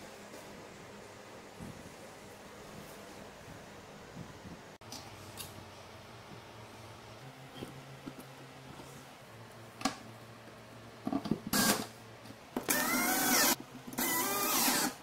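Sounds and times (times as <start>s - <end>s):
cordless drill driving screw: 12.7s - 15.0s.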